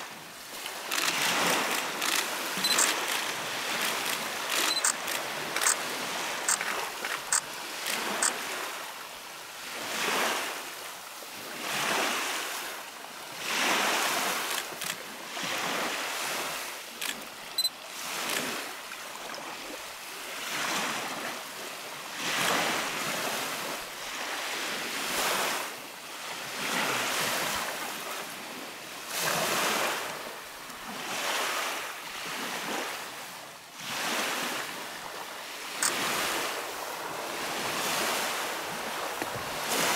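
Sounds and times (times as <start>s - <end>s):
lake waves washing onto gravel: 0.1s - 12.7s, 26.5s - 39.9s
sharp clicks: 0.9s - 5.8s, 6.5s - 8.4s.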